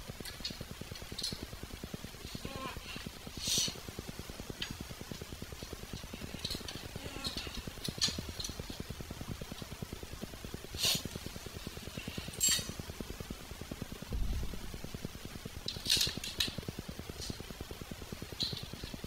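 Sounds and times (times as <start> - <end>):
fast low ticking hum: 0.0 - 19.0
metallic clinks and rattles: 12.1 - 12.9.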